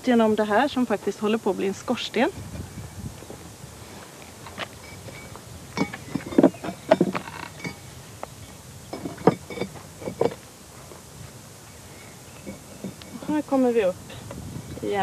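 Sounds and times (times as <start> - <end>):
bricks clinking and knocking: 4.8 - 7.8, 8.9 - 10.4.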